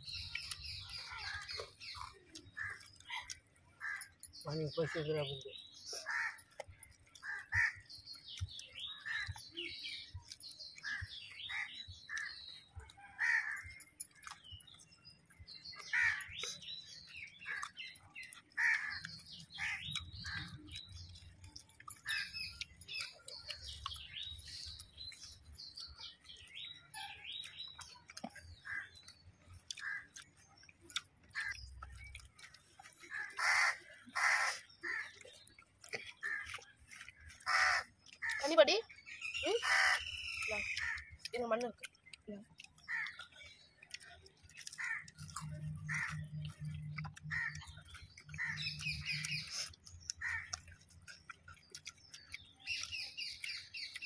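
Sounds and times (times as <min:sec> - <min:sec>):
small birds chirping: 0:00.0 - 0:54.0
crow cawing: 0:06.0 - 0:06.4, 0:07.2 - 0:07.8, 0:13.2 - 0:13.8, 0:15.9 - 0:16.3, 0:18.6 - 0:19.0, 0:33.1 - 0:35.2, 0:37.4 - 0:38.5, 0:39.6 - 0:40.0, 0:42.9 - 0:43.2, 0:44.8 - 0:45.1, 0:45.9 - 0:46.2, 0:47.3 - 0:47.7, 0:50.2 - 0:50.6.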